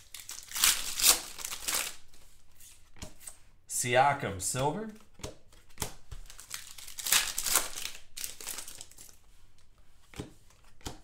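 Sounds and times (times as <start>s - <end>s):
plastic wrapper crinkling: 0.0s - 2.2s, 6.2s - 9.2s.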